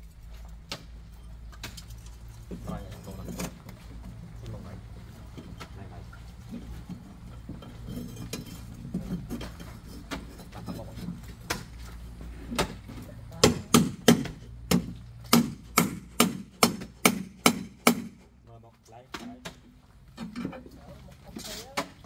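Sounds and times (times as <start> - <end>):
hammer striking wood and steel: 13.4 - 18.3.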